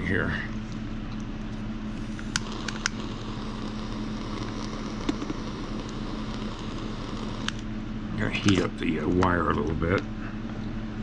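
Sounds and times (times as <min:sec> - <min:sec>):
background hum and hiss: 0:00.0 - 0:11.0
torch lighter clicks: 0:02.2 - 0:07.6.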